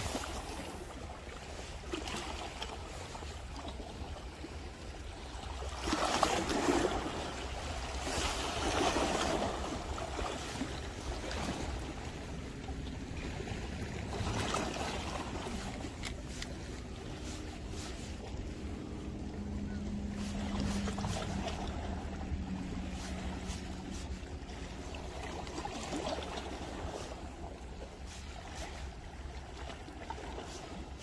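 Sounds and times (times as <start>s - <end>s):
wind rumble on microphone: 0.0s - 2.0s, 5.8s - 31.0s
waves washing against rocks: 0.0s - 3.2s.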